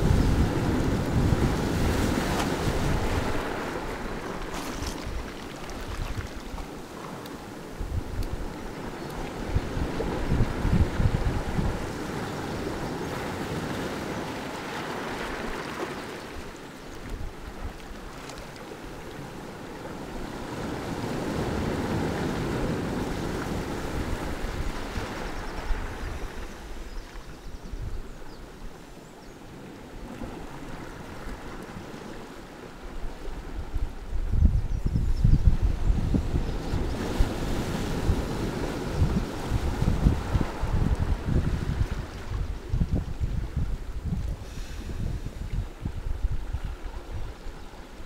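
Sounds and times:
wind buffeting microphone: 0.0s - 6.7s, 7.8s - 13.6s, 33.3s - 47.6s
surf breaking on rocks: 0.0s - 7.1s
surf washing over pebbles: 0.0s - 26.9s, 36.8s - 47.3s.

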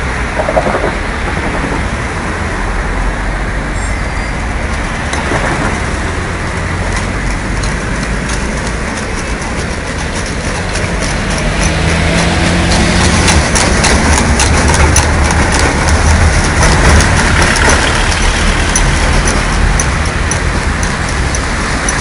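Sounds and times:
street traffic: 0.0s - 22.0s
tram passing: 0.0s - 22.0s
horse hooves clip-clopping: 4.6s - 22.0s.

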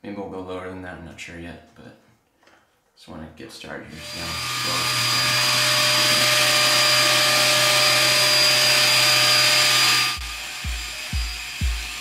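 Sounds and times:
vacuum suction rushing and whining: 4.0s - 12.0s
music with thumping beat: 10.2s - 12.0s.

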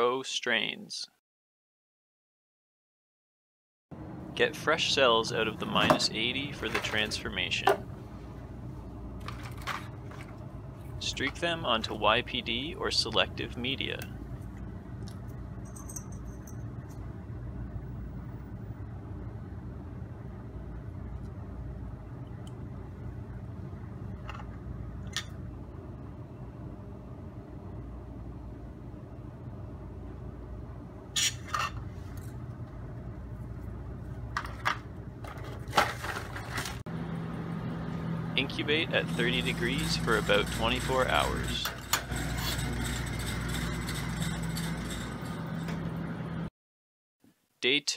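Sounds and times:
low machine hum: 3.9s - 46.5s
plastic labware clicking and clattering: 34.4s - 36.8s.

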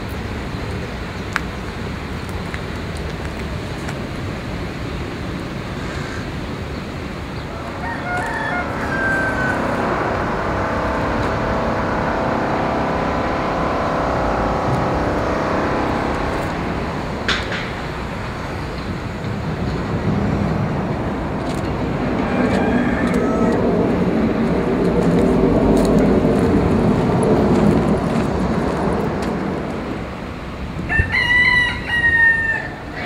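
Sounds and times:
vehicle passing: 7.0s - 31.7s
rooster crowing: 7.5s - 14.1s, 21.9s - 24.3s, 30.8s - 33.0s.

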